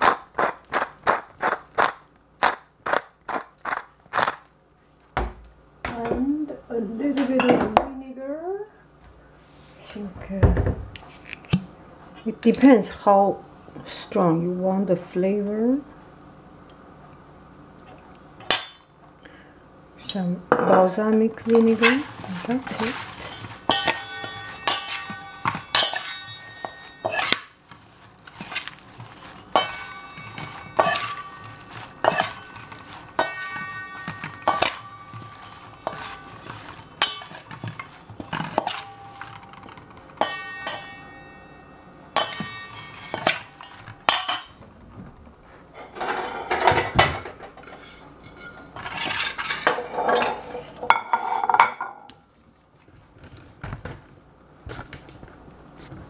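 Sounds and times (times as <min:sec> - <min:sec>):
metal bowl ringing: 0:18.4 - 0:27.6, 0:29.2 - 0:45.4
metal utensils clinking on bowl: 0:18.4 - 0:44.9, 0:45.8 - 0:52.1
scraping and rattling: 0:20.8 - 0:41.2, 0:45.7 - 0:51.6.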